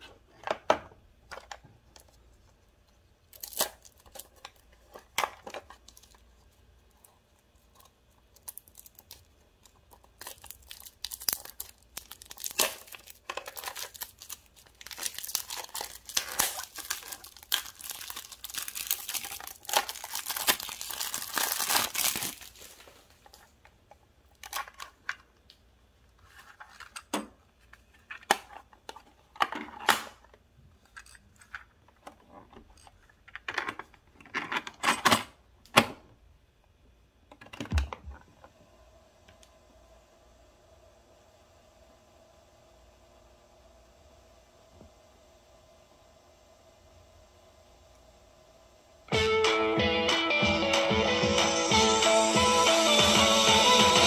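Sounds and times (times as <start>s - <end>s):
cellophane wrap crinkling: 3.2s - 23.7s.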